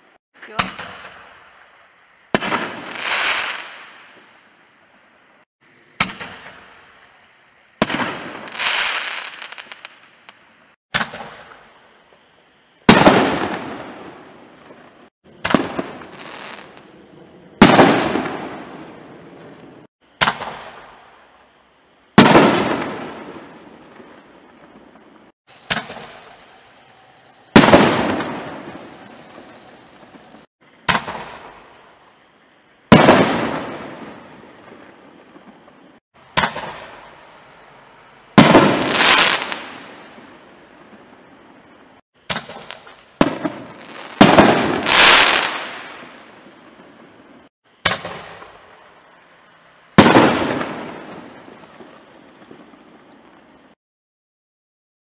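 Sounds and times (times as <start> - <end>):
firework shells banging with echo: 25.5 - 31.5, 36.3 - 37.1.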